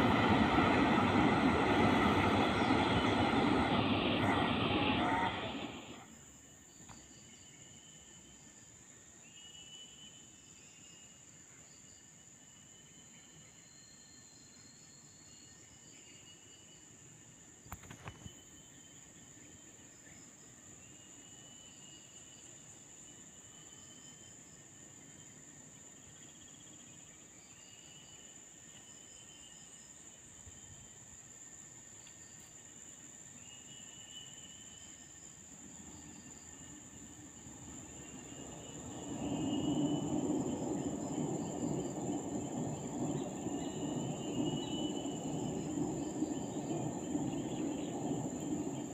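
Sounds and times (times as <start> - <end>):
low rumble: 0.0 - 6.0
insect chirps: 5.4 - 48.9
insects buzzing: 20.3 - 48.9.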